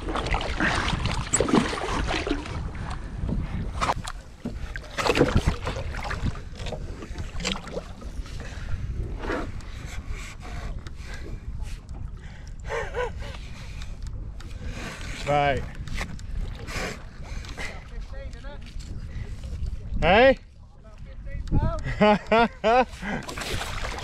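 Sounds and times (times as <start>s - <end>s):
water splashing: 0.0s - 8.4s, 23.0s - 24.0s
wind buffeting microphone: 0.0s - 22.4s.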